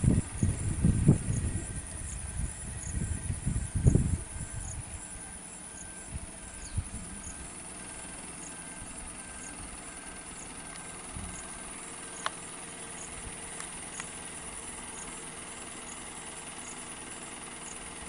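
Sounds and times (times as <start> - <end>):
vehicle engine idling: 0.0 - 18.0.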